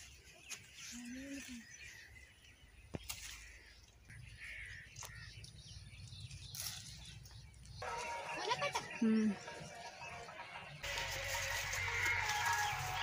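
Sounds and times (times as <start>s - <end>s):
birds chirping: 0.0s - 13.0s
leaves rustling: 3.0s - 4.0s, 6.2s - 8.9s, 10.8s - 13.0s.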